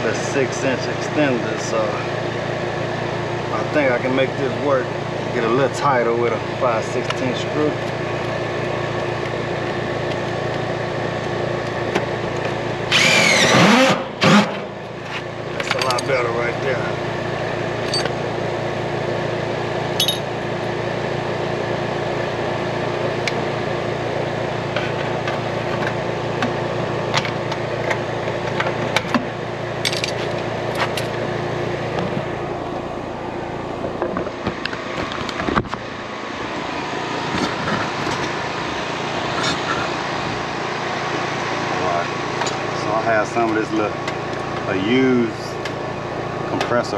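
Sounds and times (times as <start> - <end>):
steady machine hum: 0.0 - 46.9
metal tools clinking and tapping: 15.6 - 16.2, 17.8 - 18.2, 20.0 - 20.3.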